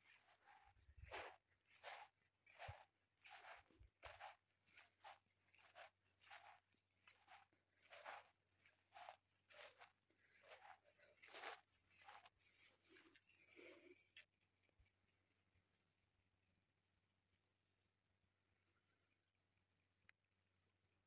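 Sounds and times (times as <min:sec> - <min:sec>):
faint footsteps walking: 0:00.0 - 0:13.9.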